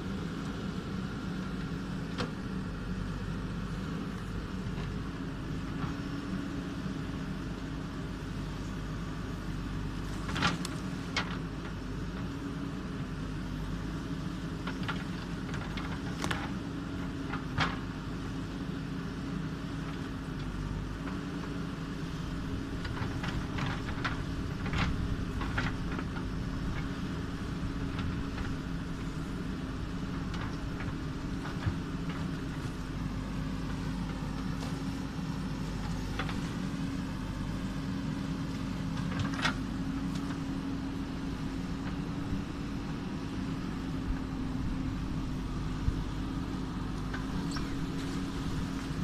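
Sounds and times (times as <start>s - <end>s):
diesel engine running: 0.0s - 49.0s.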